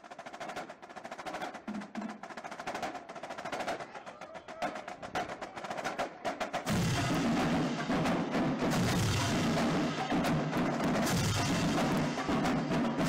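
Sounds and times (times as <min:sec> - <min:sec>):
loud full deep drumming: 0:00.0 - 0:13.0
sharp crisp drum strokes: 0:06.6 - 0:13.0.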